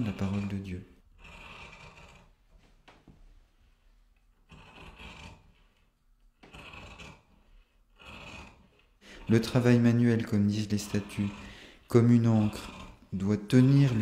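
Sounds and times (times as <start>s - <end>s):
shears cutting cloth: 9.2s - 14.0s.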